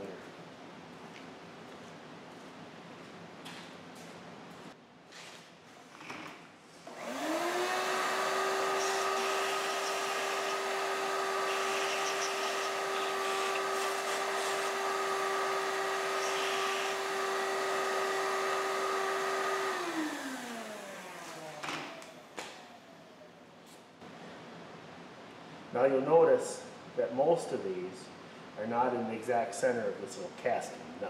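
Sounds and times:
shop vacuum motor whining: 6.9 - 23.2.

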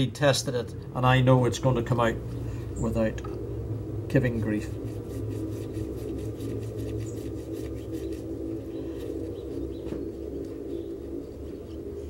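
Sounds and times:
low steady hum: 0.0 - 12.0
pigeon cooing: 4.8 - 12.0.

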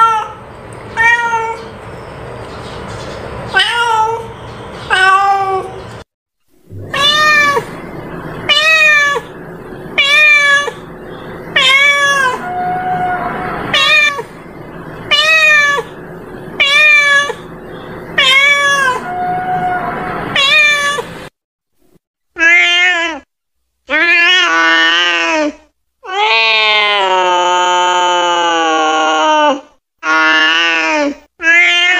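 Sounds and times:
cat meowing: 6.8 - 9.4, 10.0 - 10.9, 11.5 - 14.4, 15.1 - 16.0, 16.6 - 17.5, 18.2 - 21.2.

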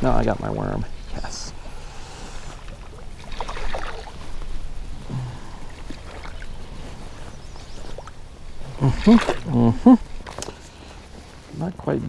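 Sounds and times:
water sloshing: 1.2 - 11.4
fish splashing in water: 1.7 - 4.6, 5.4 - 7.2, 7.9 - 9.6.

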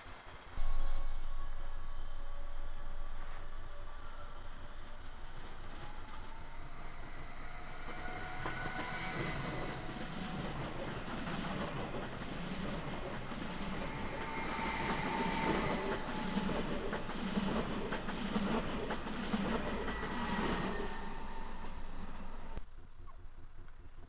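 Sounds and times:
faint electric whine: 0.0 - 17.2
train rumble: 0.0 - 23.0
train wheels clacking over rail joints: 5.3 - 22.3.

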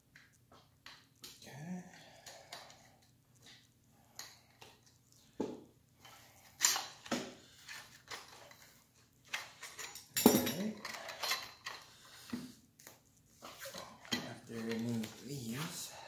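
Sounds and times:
metal clinks and knocks: 9.3 - 11.8.

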